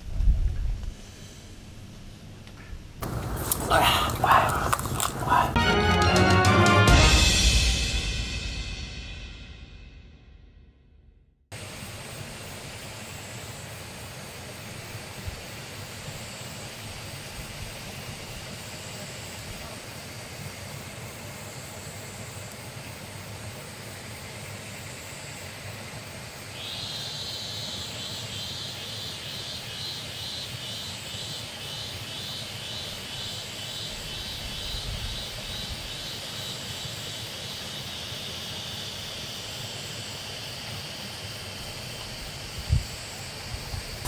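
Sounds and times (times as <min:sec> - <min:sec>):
honeybee colony humming: 0:03.0 - 0:06.5
high pulsing insect trill: 0:11.8 - 0:44.0.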